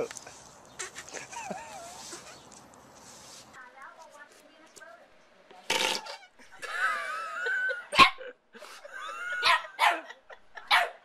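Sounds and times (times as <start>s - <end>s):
small dog barking: 9.4s - 10.1s, 10.7s - 11.0s.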